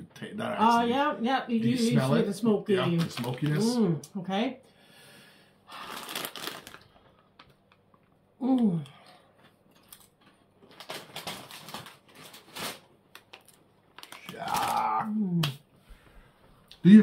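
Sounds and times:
person humming: 3.6 - 4.1, 8.4 - 9.0, 14.3 - 15.6
chewing crunchy chips: 5.8 - 8.0, 9.0 - 12.4, 13.2 - 15.0.

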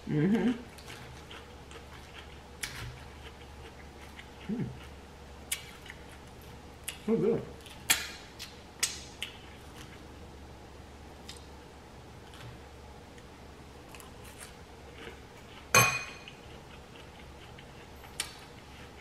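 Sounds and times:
chewing salad: 0.3 - 10.1, 11.2 - 11.5, 12.2 - 19.0
fork clinking on glass bowl: 15.8 - 16.3.

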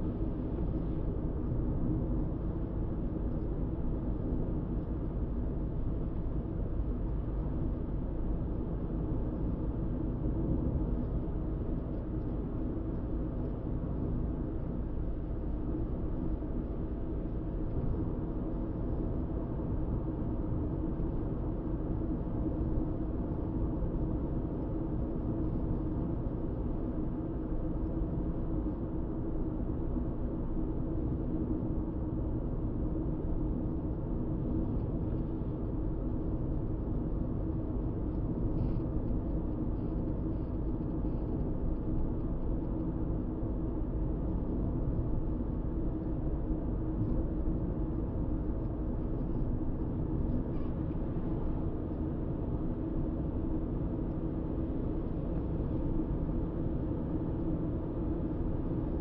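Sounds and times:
car interior engine and road noise: 51.0 - 59.0.

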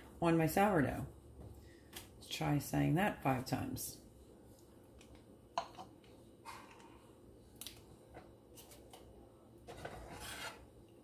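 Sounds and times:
knife scraping butter on bread: 9.7 - 10.7.

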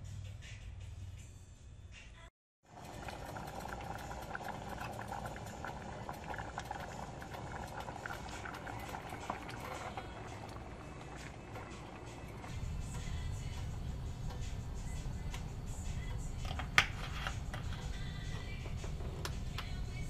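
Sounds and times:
pot of water bubbling: 2.6 - 12.7.

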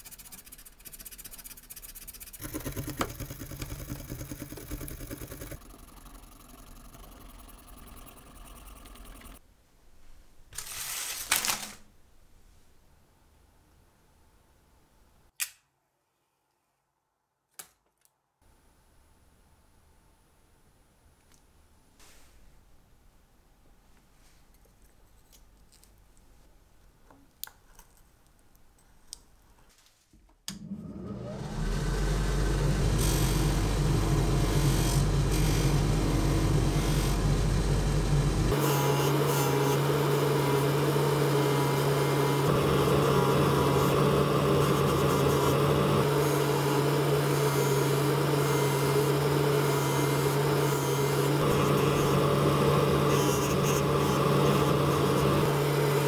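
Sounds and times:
abrasive wheel grinding metal: 2.4 - 9.4, 31.5 - 56.0
polishing machine humming: 2.4 - 9.4, 30.6 - 56.0.

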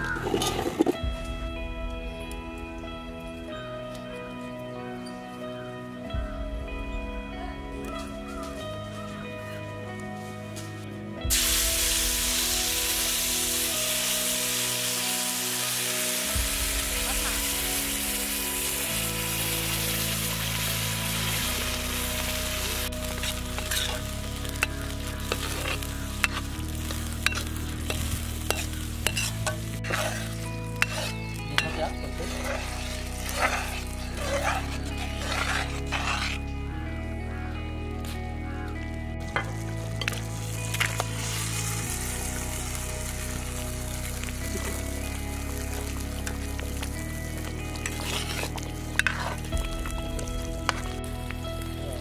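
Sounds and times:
background music with sustained chords: 0.0 - 52.0
curry sizzling in a pan: 11.3 - 36.4, 39.4 - 52.0
spoon scraping a pan: 23.2 - 26.5, 27.2 - 36.4, 47.8 - 49.5.

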